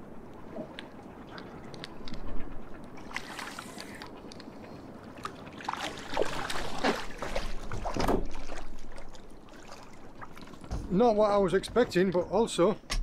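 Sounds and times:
fish splashing at water surface: 5.2 - 10.7.

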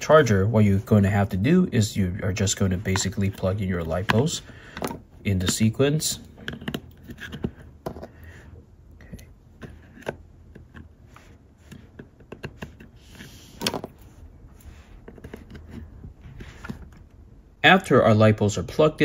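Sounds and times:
plastic plug clicks and scrapes: 6.3 - 8.2, 9.0 - 14.0, 15.0 - 17.2.

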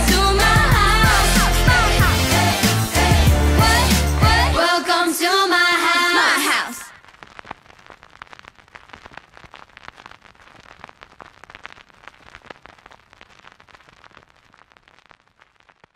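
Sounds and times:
faint dense crackling: 6.9 - 15.9.

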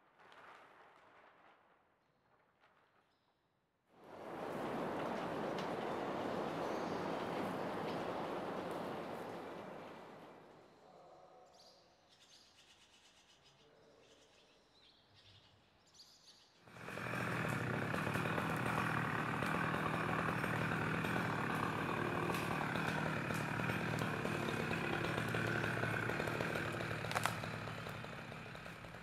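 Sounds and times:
chainsaw running: 4.2 - 10.4, 16.7 - 29.0
faint bird chirps: 10.6 - 16.6.

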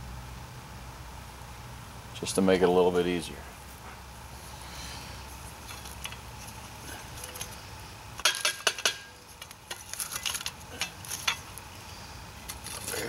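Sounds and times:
shovel scooping charcoal: 4.4 - 13.0
charcoal clinking: 5.4 - 13.0.

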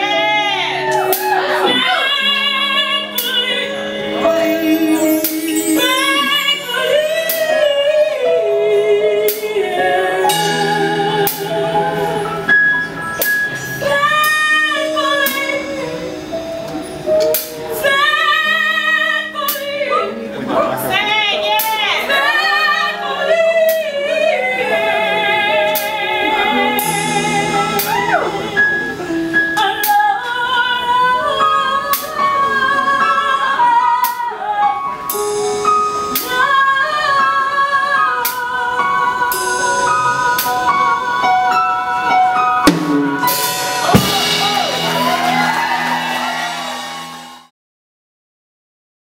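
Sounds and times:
drum kit: 0.0 - 2.0, 4.2 - 6.4, 10.2 - 17.9, 26.6 - 30.1, 39.3 - 47.5
woman singing with vibrato: 0.0 - 12.6, 13.7 - 16.6, 17.5 - 45.9
blues band playing: 0.0 - 47.5
cymbal wash: 42.7 - 46.0.

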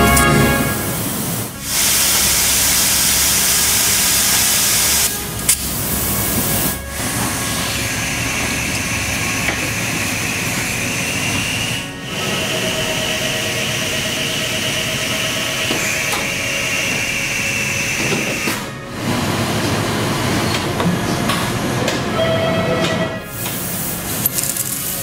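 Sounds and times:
laser cutting machinery hissing: 0.6 - 18.6, 23.3 - 25.0.

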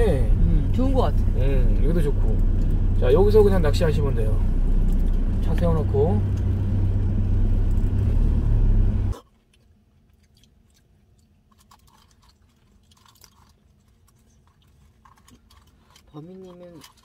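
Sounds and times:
car road noise rumble: 0.0 - 9.2
person chewing: 2.4 - 3.0, 4.6 - 5.4, 9.1 - 17.0.

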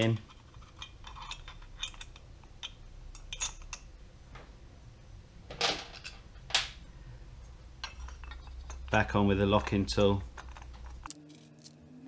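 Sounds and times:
tools scraping: 0.0 - 3.9, 7.8 - 11.8.

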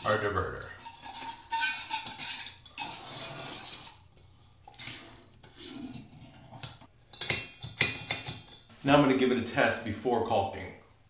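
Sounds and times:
metal scraping and clinking on threads: 0.0 - 8.8.

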